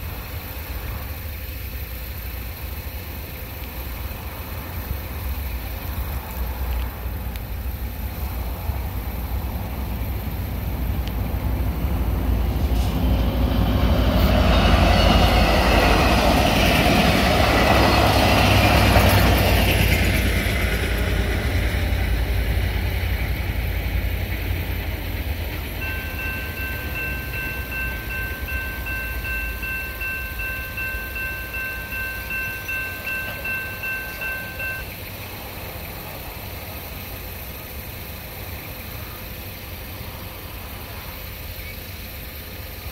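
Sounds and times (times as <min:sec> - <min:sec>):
passenger train rushing past: 0:03.9 - 0:41.3
crossing bell ringing: 0:13.3 - 0:21.6, 0:24.7 - 0:35.1.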